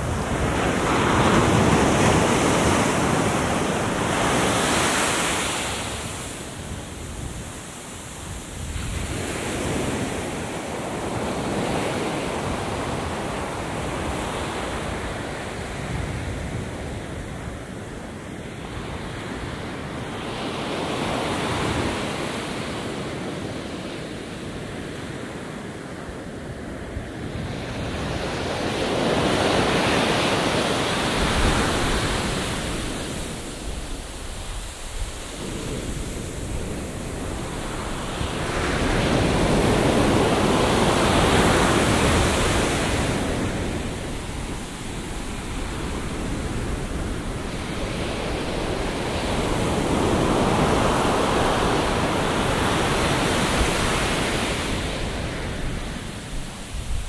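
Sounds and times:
surf breaking on beach: 28.6s - 57.0s.

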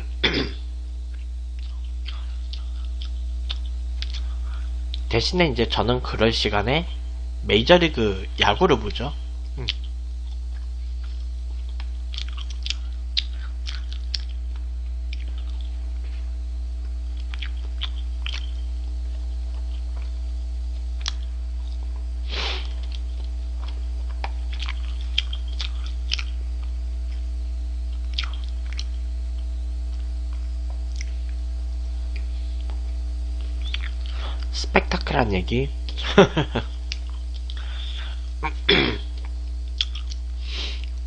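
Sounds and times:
low electrical hum: 0.0s - 41.0s
wet mouth clicks and smacks: 1.1s - 4.3s, 9.6s - 15.7s, 17.2s - 18.6s, 21.0s - 21.3s, 22.7s - 27.2s, 28.0s - 29.0s, 30.3s - 31.4s, 33.4s - 34.1s, 36.9s - 37.6s, 39.2s - 41.0s
person chewing: 1.1s - 5.1s, 9.5s - 16.2s, 16.8s - 34.5s, 36.7s - 41.0s.

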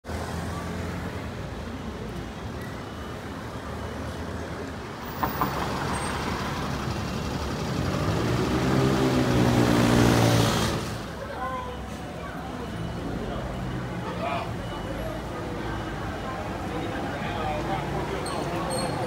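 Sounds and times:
street traffic: 0.0s - 19.0s
vehicle engine approaching: 5.0s - 11.2s.

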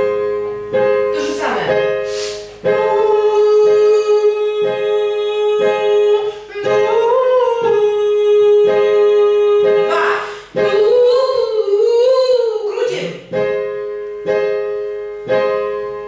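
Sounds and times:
piano accompaniment: 0.0s - 16.0s
singer breathing: 2.0s - 2.6s.

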